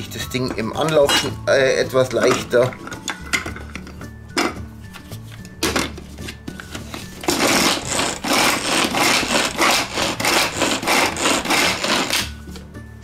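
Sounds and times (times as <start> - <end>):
hand food chopper whirring: 7.2 - 12.3.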